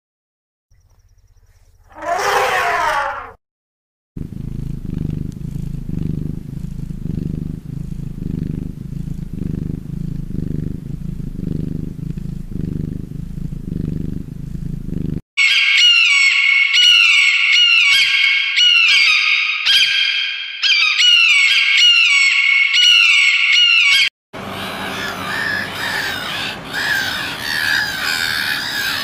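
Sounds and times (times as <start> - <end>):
cat purring: 4.2 - 15.2.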